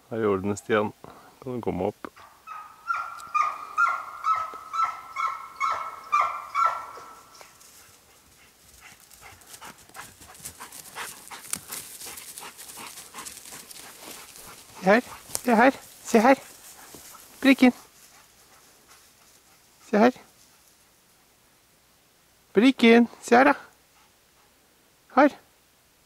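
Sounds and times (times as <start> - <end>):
dog yelping: 2.2 - 7.4
rustling and twig snapping: 10.8 - 17.4.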